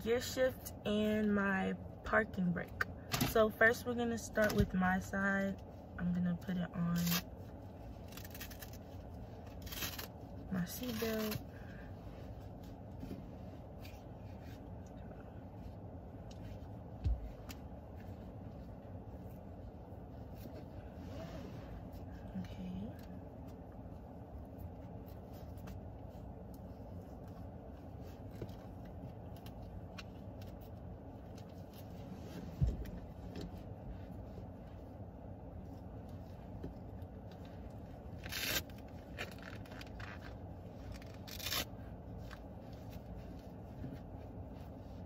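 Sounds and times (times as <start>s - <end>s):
steady low rumble: 0.0s - 45.0s
seatbelt cover rustling and scraping: 6.7s - 45.0s
short rasping rips: 38.2s - 40.3s, 40.9s - 41.7s.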